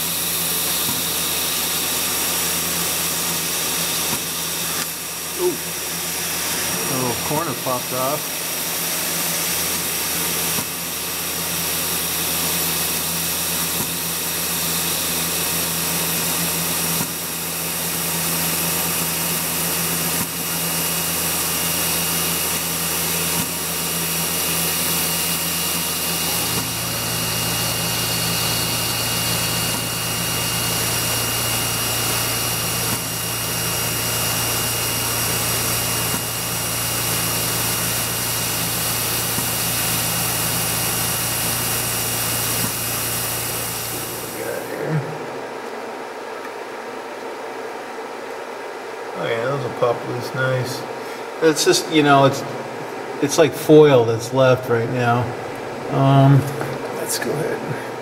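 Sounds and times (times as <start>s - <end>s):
mill spindle cutting metal: 0.0s - 44.8s.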